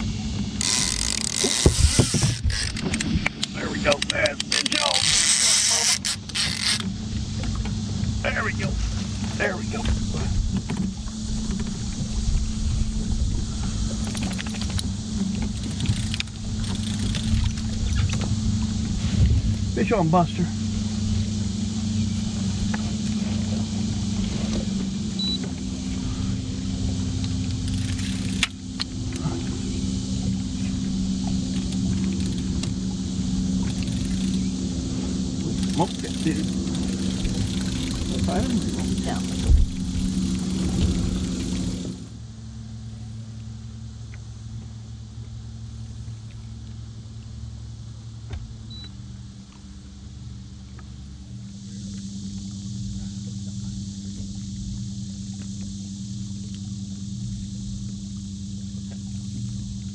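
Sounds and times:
outboard motor running: 0.0s - 59.9s
faint ticks: 14.0s - 18.3s.

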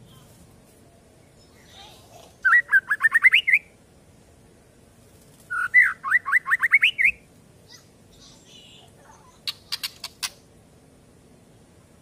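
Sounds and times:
bird calling rising notes: 2.4s - 3.8s, 5.5s - 7.3s.

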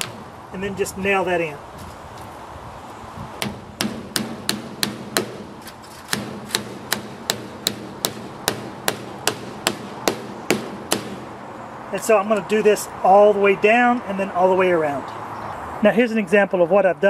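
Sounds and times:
hammer tapping in staple: 3.4s - 5.4s, 6.1s - 11.2s.

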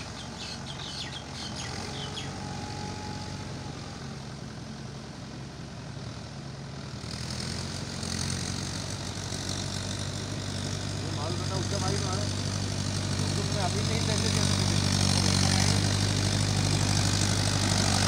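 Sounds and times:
birds chirping: 0.0s - 2.6s
tractor engine running: 0.0s - 18.0s.

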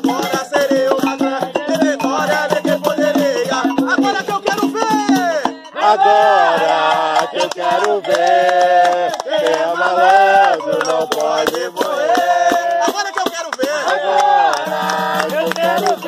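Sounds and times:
voices singing long held notes: 0.0s - 4.8s, 5.4s - 16.0s
hand drum: 0.0s - 5.8s, 6.5s - 16.0s
hand claps: 6.7s - 16.0s.

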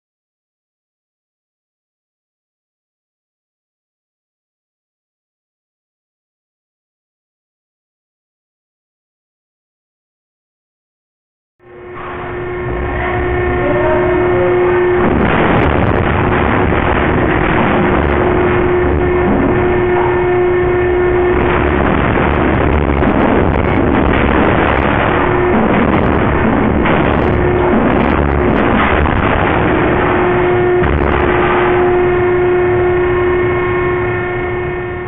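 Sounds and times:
industrial machinery noise: 11.6s - 35.0s
steady hum: 11.6s - 35.0s.

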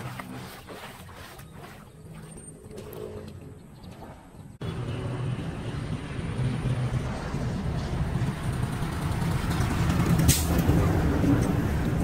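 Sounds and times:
floodwater rushing: 0.0s - 3.5s.

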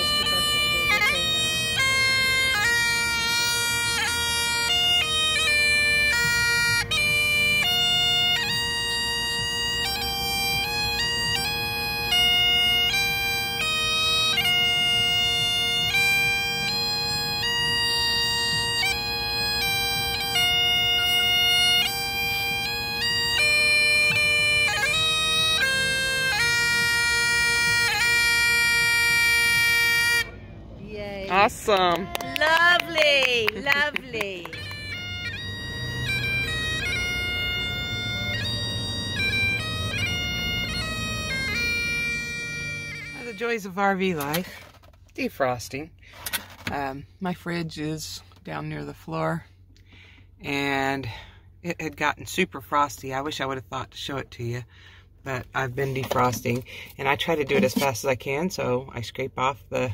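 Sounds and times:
bagpipes playing a tune: 0.0s - 30.6s, 31.3s - 44.8s, 54.7s - 58.0s.

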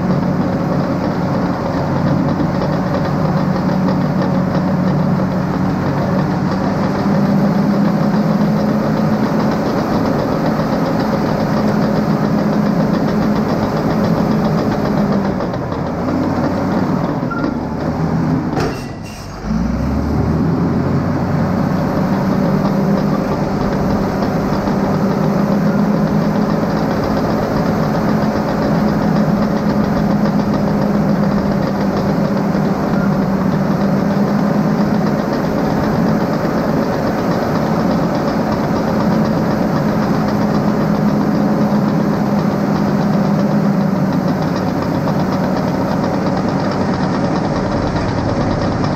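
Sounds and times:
bulldozer diesel engine under load: 0.0s - 48.9s.

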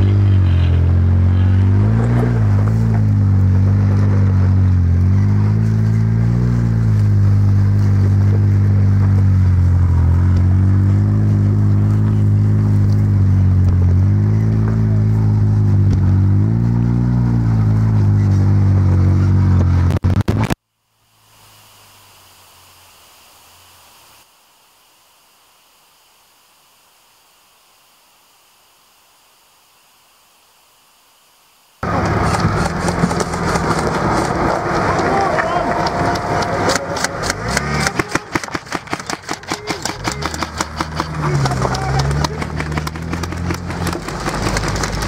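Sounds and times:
buggy engine running: 0.0s - 20.6s, 31.8s - 45.0s
audio crackle: 19.5s - 45.0s
faint hiss: 20.6s - 31.8s.

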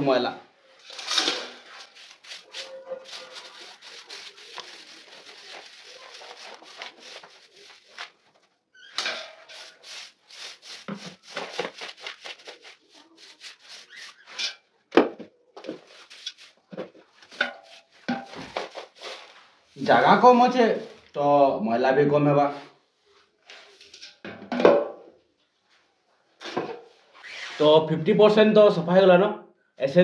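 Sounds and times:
broom sweeping floor: 0.8s - 8.3s, 9.0s - 14.6s, 15.6s - 21.1s, 22.5s - 24.1s.

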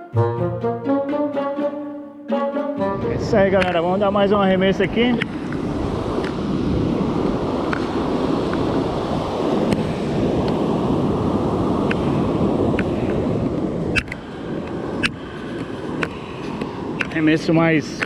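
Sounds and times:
surf breaking on beach: 3.0s - 18.0s
wind buffeting microphone: 3.0s - 18.0s.

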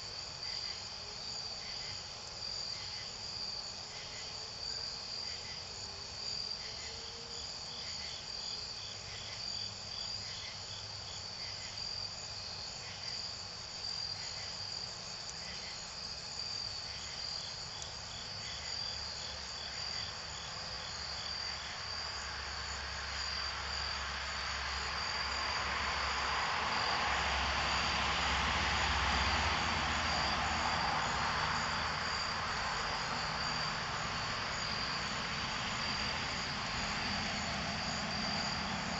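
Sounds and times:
crickets trilling: 0.0s - 38.9s
broad rumbling rush: 24.0s - 38.9s.

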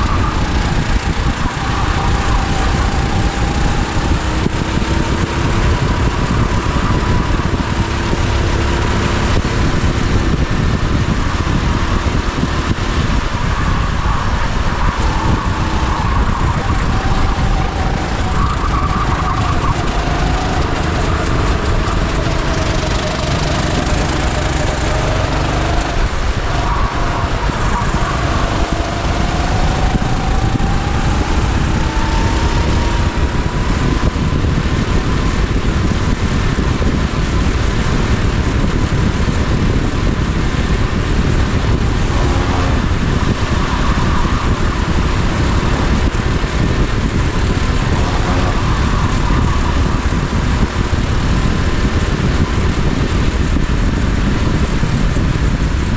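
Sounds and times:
go-kart engine accelerating: 0.0s - 55.9s
wind noise: 0.0s - 55.9s.

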